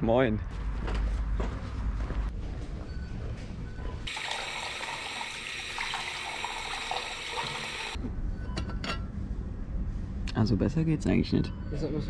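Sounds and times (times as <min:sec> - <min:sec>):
tap water running into sink: 0:04.1 - 0:08.0
water splashing over a pot: 0:04.1 - 0:08.0.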